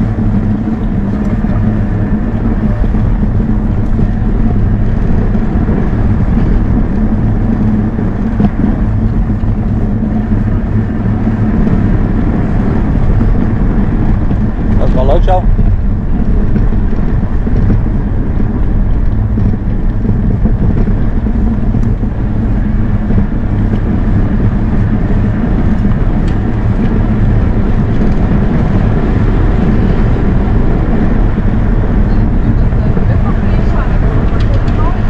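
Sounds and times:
road noise on brick paving: 0:00.0 - 0:35.0
wind buffeting microphone: 0:00.0 - 0:35.0.

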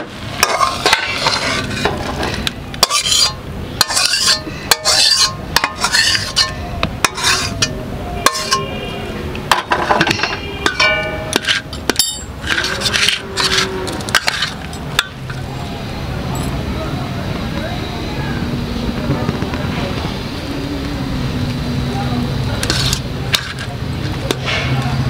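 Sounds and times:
spatula scraping metal wok: 0:00.0 - 0:08.8, 0:09.6 - 0:15.3, 0:22.6 - 0:23.7
metal clinking: 0:09.5 - 0:15.2.

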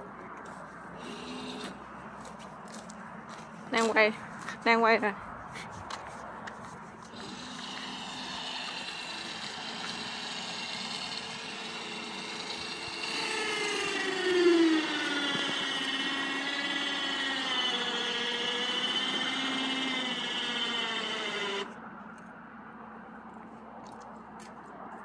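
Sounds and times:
crane electric motor whining: 0:01.0 - 0:01.9, 0:07.0 - 0:21.8.

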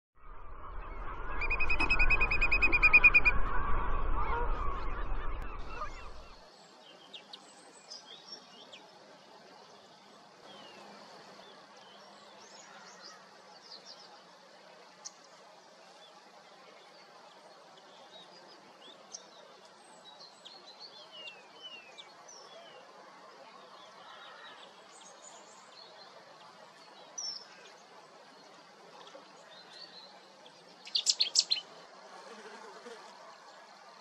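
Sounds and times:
small birds chirping: 0:24.1 - 0:31.8.

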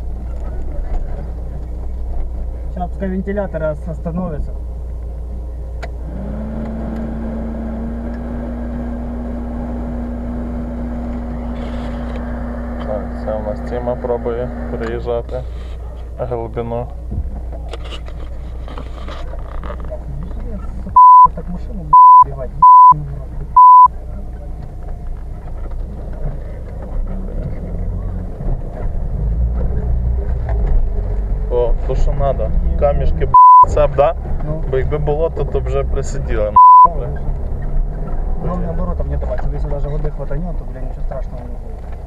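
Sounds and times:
vehicle engine running low: 0:00.0 - 0:42.0
censor bleeps: 0:21.0 - 0:21.3, 0:22.0 - 0:23.0, 0:23.6 - 0:23.9, 0:33.4 - 0:33.7, 0:36.6 - 0:36.9.

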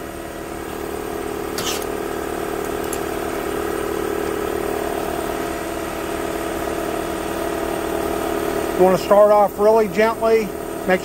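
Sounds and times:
machine motor humming: 0:00.0 - 0:11.0.

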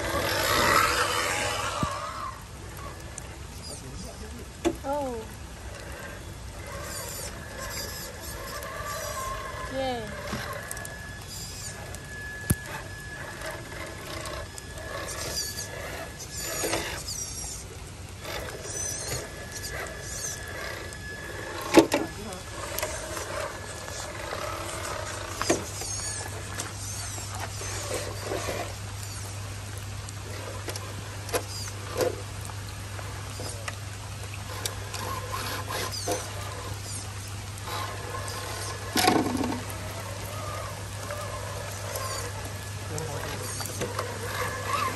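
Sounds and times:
drivetrain whine: 0:00.0 - 0:44.9
steady low motor hum: 0:00.0 - 0:44.9
gear clicking: 0:34.4 - 0:44.9.

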